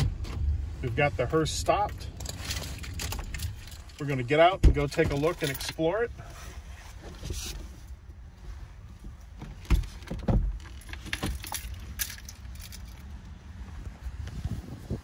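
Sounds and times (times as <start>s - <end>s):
low steady rumble: 0.0s - 15.0s
clicks and rustling: 1.8s - 5.9s.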